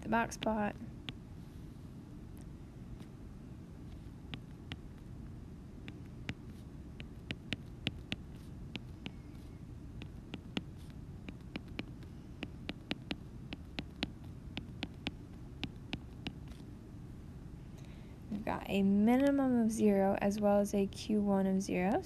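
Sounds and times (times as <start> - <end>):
low steady hum: 0.0 - 22.0
stylus tapping on glass screen: 11.3 - 16.4.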